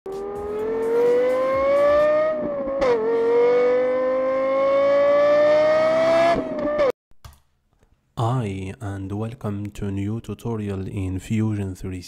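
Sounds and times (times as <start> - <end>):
car engine revving: 0.1 - 6.9.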